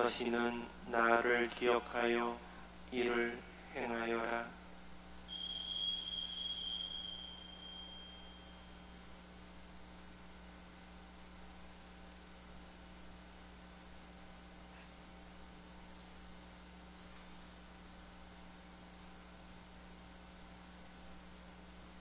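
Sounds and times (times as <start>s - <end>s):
faint electrical hum: 0.0s - 22.0s
small bell ringing: 5.3s - 9.1s.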